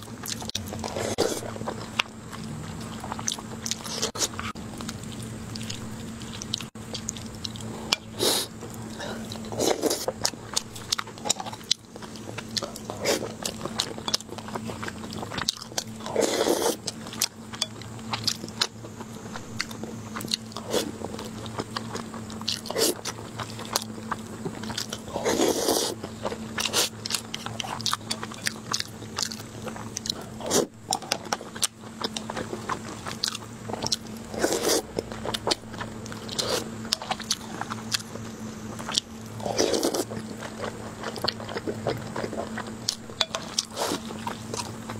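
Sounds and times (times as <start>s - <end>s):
person chewing with wet smacks: 8.7s - 44.9s.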